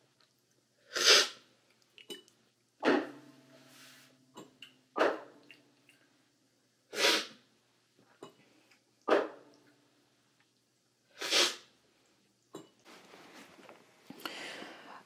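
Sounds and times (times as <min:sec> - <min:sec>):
loud coffee slurps: 0:00.9 - 0:01.4, 0:11.2 - 0:11.6.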